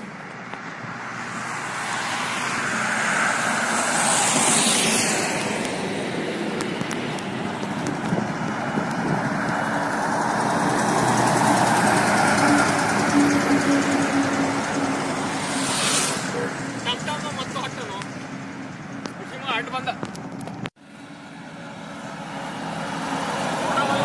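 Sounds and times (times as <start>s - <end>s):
bus diesel engine: 0.0s - 24.0s
vehicle swishing past: 0.8s - 6.6s, 7.3s - 17.3s.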